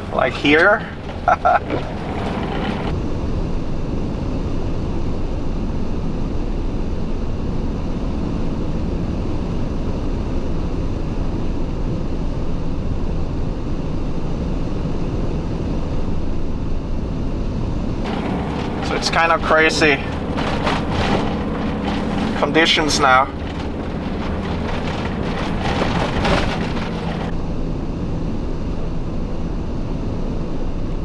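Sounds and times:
tyres on snow: 0.0s - 2.9s, 18.1s - 27.3s
van engine rumbling: 0.0s - 31.0s.

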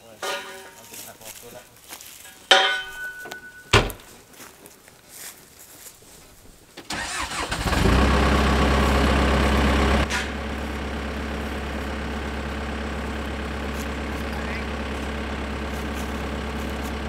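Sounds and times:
diesel engine starting and idling: 6.8s - 17.0s.

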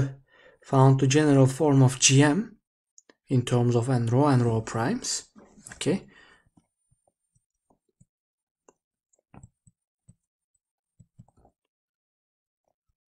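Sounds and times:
stylus tapping on tablet screen: 8.7s - 11.5s.

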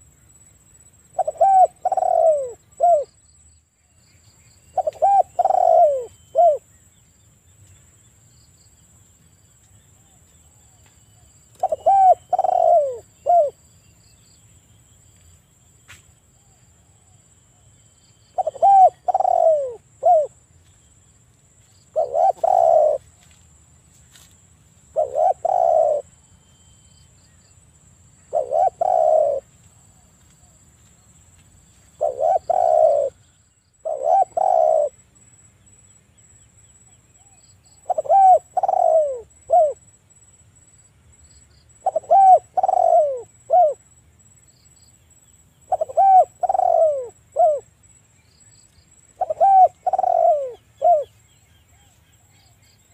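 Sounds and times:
dove cooing: 1.1s - 3.1s, 4.7s - 6.6s, 11.6s - 13.6s, 18.3s - 20.4s, 21.9s - 23.1s, 24.9s - 26.2s, 28.2s - 30.6s, 32.0s - 33.2s, 33.8s - 35.0s, 37.2s - 39.8s, 41.8s - 43.8s, 45.7s - 47.7s, 49.2s - 51.9s.

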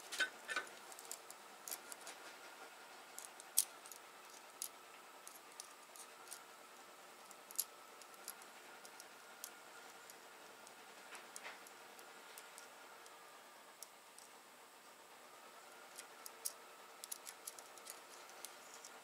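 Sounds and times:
faint steady hum: 0.0s - 19.0s
small metallic clicks: 3.2s - 6.5s, 7.2s - 13.2s, 13.8s - 14.4s, 15.9s - 19.0s.

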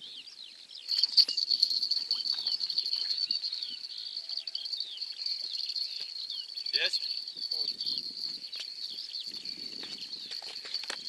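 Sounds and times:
birds chirping: 0.0s - 11.0s
high-pitched insect trill: 0.8s - 11.0s.

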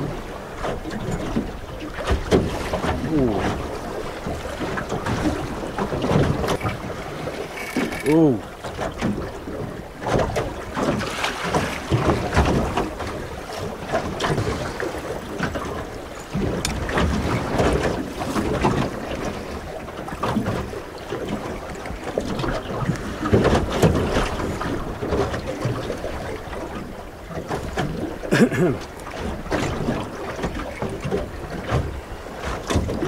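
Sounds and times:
water slapping against boat hull: 0.0s - 33.0s.

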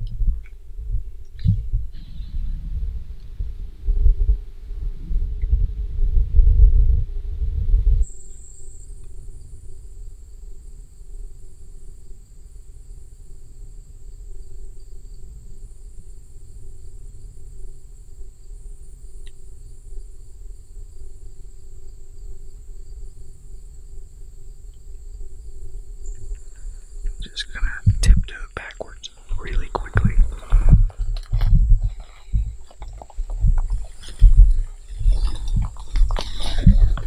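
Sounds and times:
insects trilling: 8.0s - 37.0s
low rumble: 27.1s - 37.0s.

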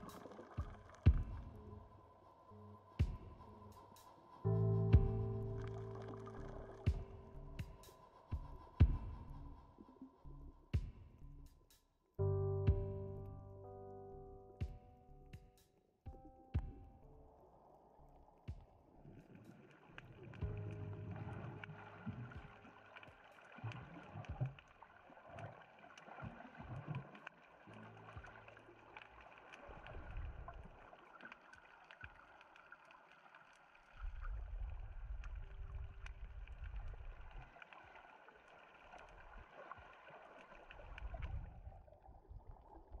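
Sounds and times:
crackle of reef clicks: 19.1s - 41.6s.

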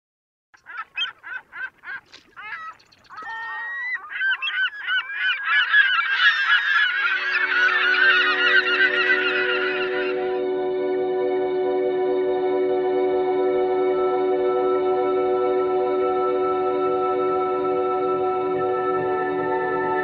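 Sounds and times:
geese honking: 0.6s - 10.4s
music: 5.5s - 20.0s.

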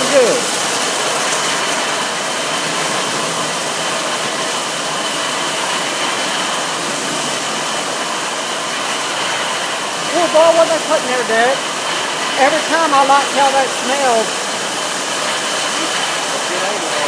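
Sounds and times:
car wash brushes and water spray: 0.0s - 17.0s.

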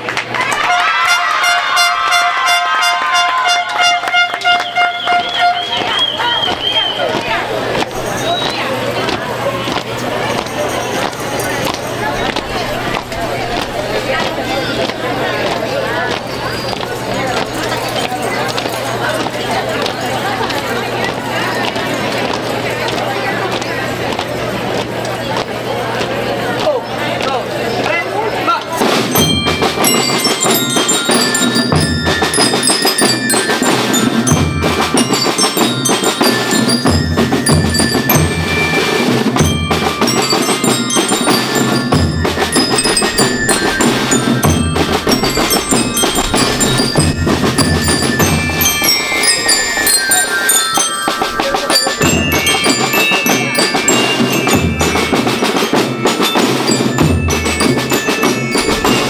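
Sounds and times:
steady drum beats: 1.7s - 22.6s, 28.6s - 59.0s
glockenspiel melody: 7.8s - 13.4s, 28.8s - 59.0s.

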